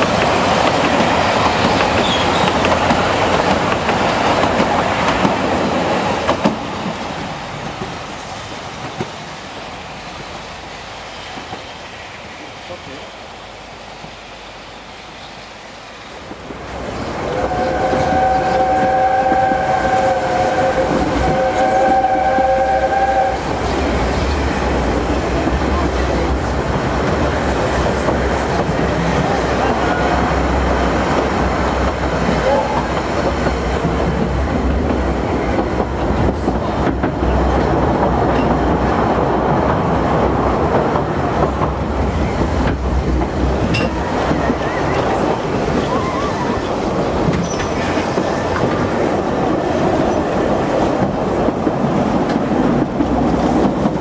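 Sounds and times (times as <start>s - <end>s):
train rumbling along track: 0.0s - 54.0s
train whistle chord: 17.3s - 23.5s.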